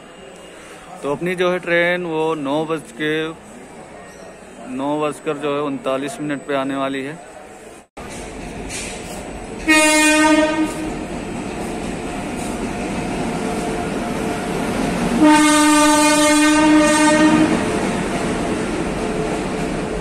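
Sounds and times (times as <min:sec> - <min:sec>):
train wheels rumbling on rail: 0:08.0 - 0:20.0
train horn blasts: 0:09.6 - 0:11.0, 0:15.2 - 0:17.7.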